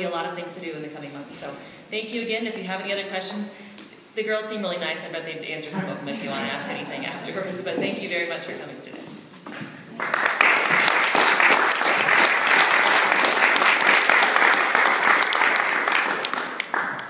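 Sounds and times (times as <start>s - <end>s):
audience applauding: 9.9s - 17.0s.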